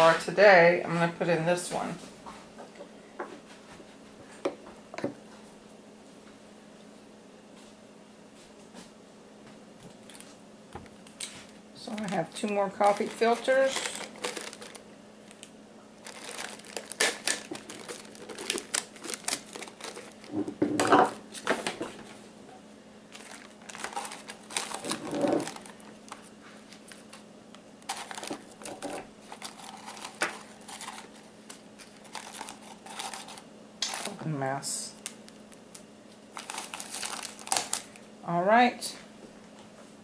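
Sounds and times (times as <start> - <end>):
handling noises: 9.8 - 34.2, 35.0 - 38.0
paper filters crinkling: 9.9 - 22.2, 23.0 - 38.1.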